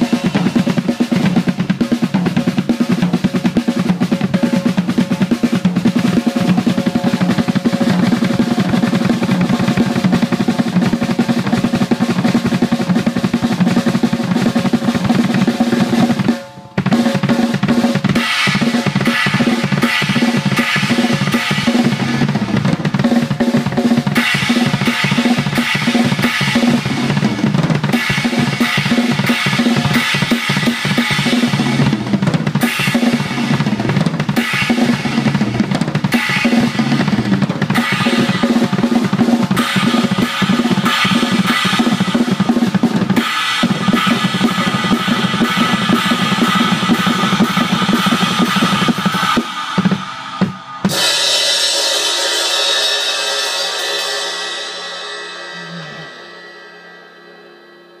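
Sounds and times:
cymbal crash ringing: 0:00.0 - 0:01.8, 0:14.9 - 0:58.0
drum kit playing: 0:00.0 - 0:56.9.

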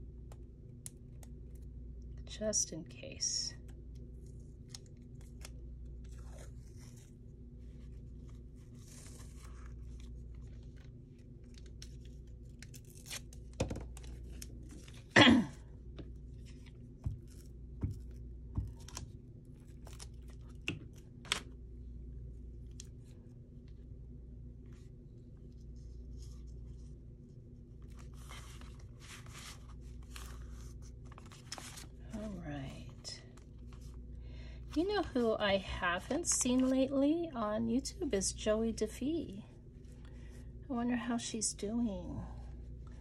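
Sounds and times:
steady low hum: 0:00.0 - 0:43.0
paper rustling: 0:04.1 - 0:15.2, 0:27.8 - 0:34.0, 0:36.0 - 0:36.8.

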